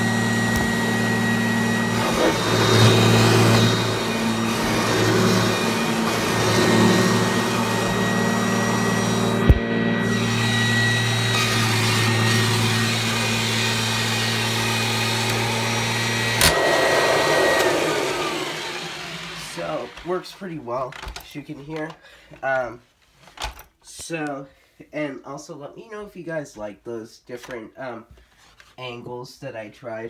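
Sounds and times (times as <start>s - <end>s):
vacuum cleaner whining: 0.0s - 20.4s
vacuum cleaner switch click: 16.4s - 16.9s.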